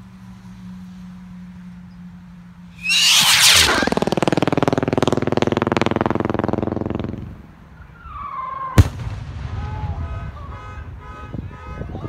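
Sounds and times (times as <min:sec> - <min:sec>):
firework buzzing pulses: 0:02.7 - 0:07.5
firework bang: 0:02.8 - 0:06.7.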